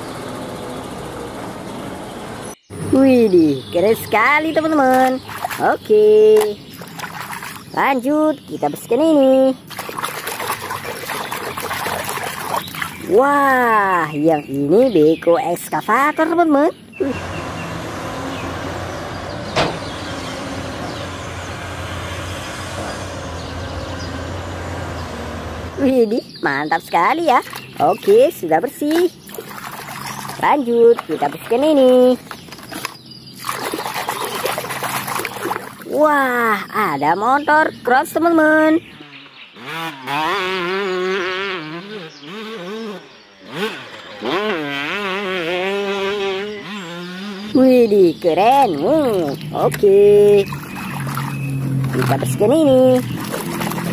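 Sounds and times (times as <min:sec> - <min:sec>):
excavator engine running under load: 0:00.0 - 0:02.5, 0:17.1 - 0:25.8
dirt bike engine revving: 0:17.0 - 0:26.0, 0:38.9 - 0:53.9.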